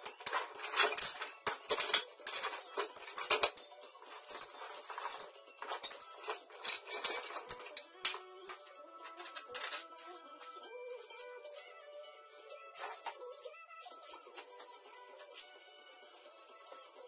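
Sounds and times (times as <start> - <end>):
metal tools clinking and clattering: 0.0 - 10.0.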